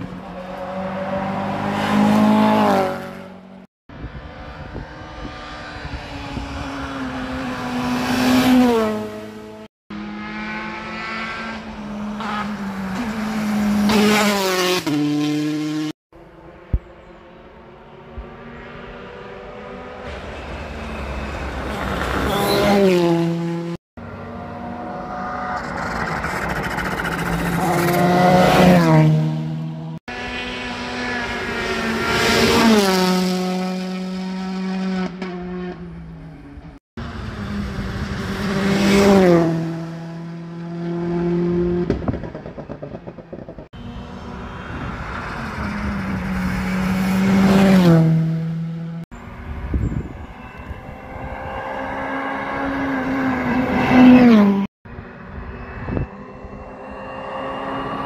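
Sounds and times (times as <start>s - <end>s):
rally cars passing at speed: 0.0s - 58.0s.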